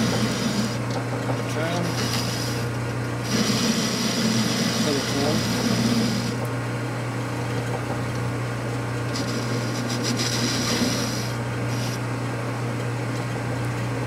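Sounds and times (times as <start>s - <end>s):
cutting tool scraping hiss: 0.0s - 0.8s, 1.7s - 6.4s, 9.2s - 12.0s
lathe humming: 0.0s - 6.5s, 9.1s - 12.0s.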